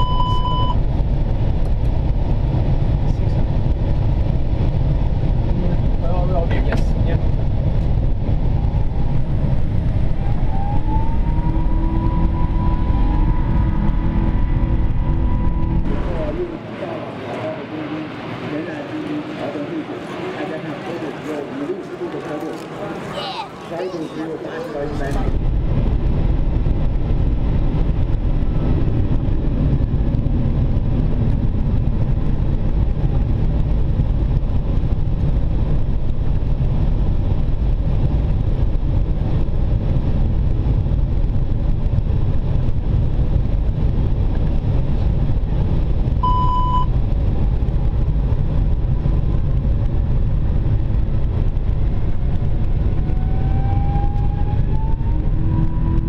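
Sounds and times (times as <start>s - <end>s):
short beep: 0.0s - 0.8s, 46.2s - 46.9s
cockpit airflow and engine rumble: 0.0s - 56.0s
rising whine: 0.0s - 56.0s.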